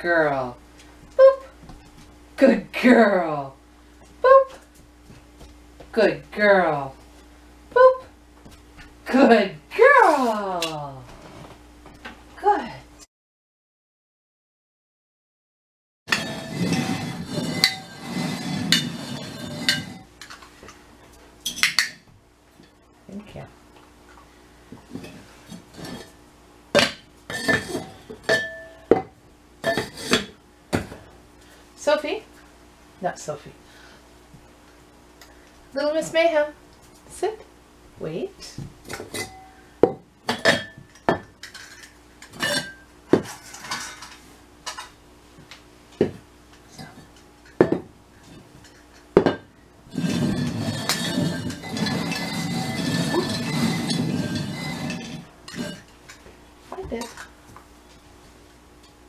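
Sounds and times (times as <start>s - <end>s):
clay pots scraping on floor: 11.1s - 11.6s, 16.1s - 20.4s, 24.8s - 26.2s, 27.3s - 28.5s, 29.6s - 30.4s, 48.2s - 57.3s.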